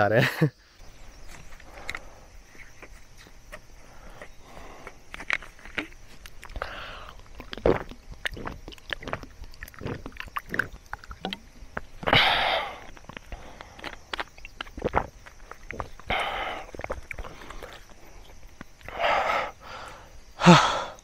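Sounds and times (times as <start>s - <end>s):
man swallowing: 4.0s - 21.0s
plastic bottle crinkling: 4.9s - 18.9s
breathy rush: 18.9s - 21.0s.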